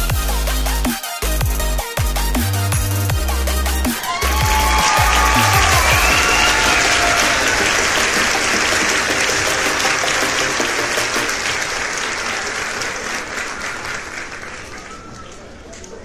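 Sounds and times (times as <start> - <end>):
crowd applause: 3.3 - 15.8.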